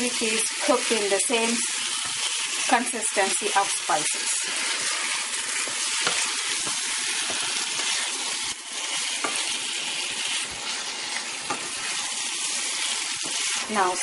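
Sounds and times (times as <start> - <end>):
chicken sizzling in hot oil: 0.0 - 14.0
wooden spoon scraping pan: 4.1 - 14.0.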